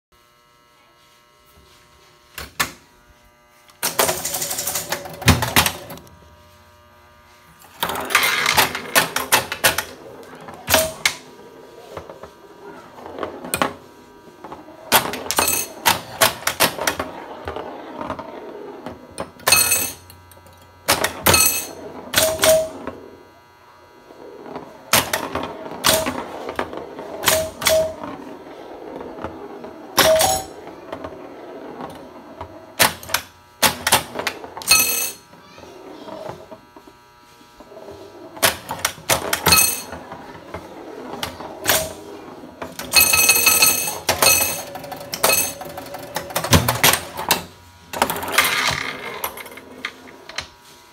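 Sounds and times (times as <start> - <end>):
pinball solenoids clacking: 3.8 - 6.0, 7.8 - 11.3, 14.9 - 18.2, 18.8 - 23.0, 24.9 - 28.3, 28.9 - 31.1, 31.8 - 35.2, 38.4 - 50.5.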